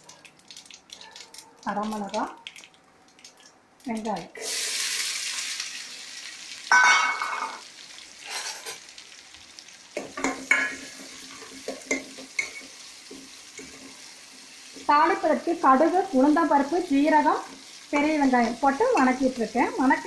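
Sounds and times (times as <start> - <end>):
onions sizzling in hot oil: 3.8 - 20.0
metal spatula clinking on pot: 6.7 - 7.6, 10.0 - 12.7.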